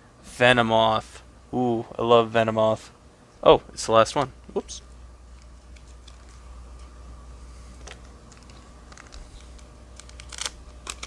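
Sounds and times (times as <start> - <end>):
low steady hum: 0.0 - 11.0
trading cards clicking: 7.8 - 11.0.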